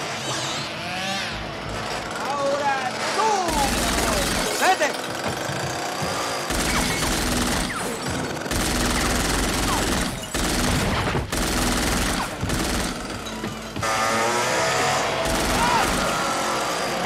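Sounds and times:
rapid gunfire bursts: 2.1 - 13.4, 15.0 - 17.0.

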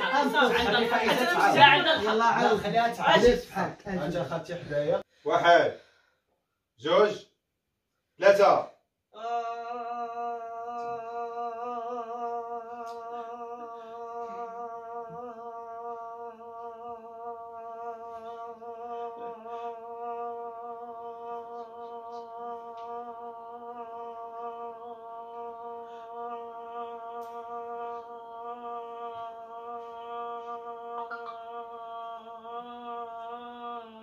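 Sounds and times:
woman humming a held note: 29.0 - 34.0.

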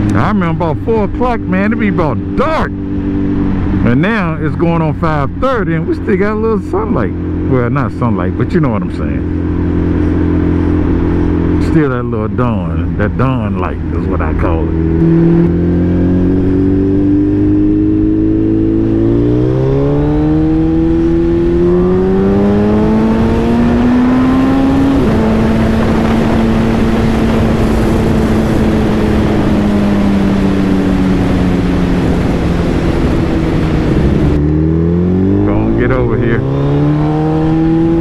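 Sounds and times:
motorcycle engine accelerating: 0.0 - 38.0
wind rushing past microphone: 13.7 - 38.0.

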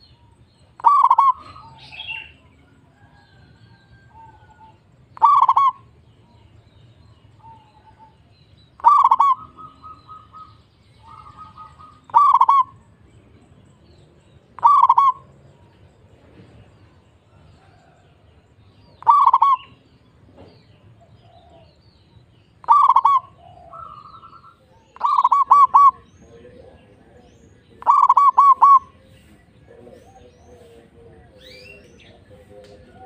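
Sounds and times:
dove cooing: 0.8 - 6.0, 7.3 - 12.9, 14.6 - 15.6, 18.9 - 19.8, 20.9 - 33.0.

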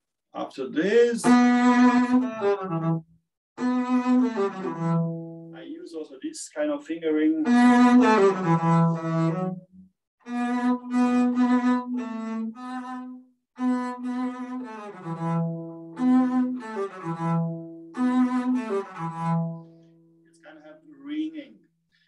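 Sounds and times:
bowed double bass: 1.2 - 5.6, 7.3 - 19.9.

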